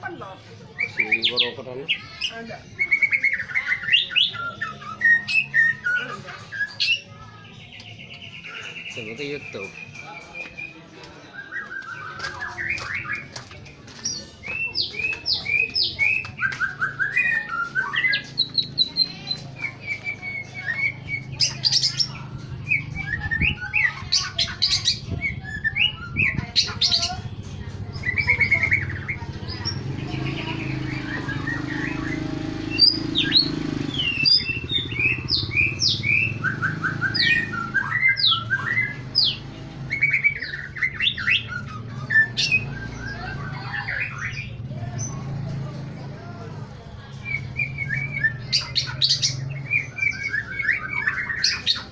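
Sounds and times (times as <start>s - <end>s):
bird singing whistled phrases: 2.8s - 7.1s, 14.4s - 27.0s, 30.5s - 44.6s.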